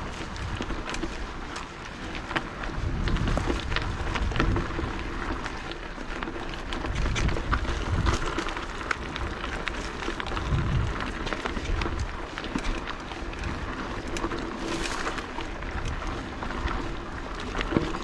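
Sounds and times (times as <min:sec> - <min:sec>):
bike clicks and rattles: 0:00.0 - 0:18.0
bike tyres on dirt: 0:00.0 - 0:18.0
wind on microphone: 0:02.6 - 0:05.0, 0:06.9 - 0:08.4, 0:10.2 - 0:12.2.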